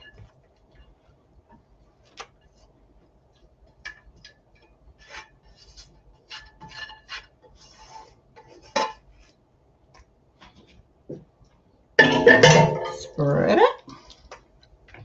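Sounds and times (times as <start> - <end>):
utensil scraping a frying pan: 5.0 - 9.2.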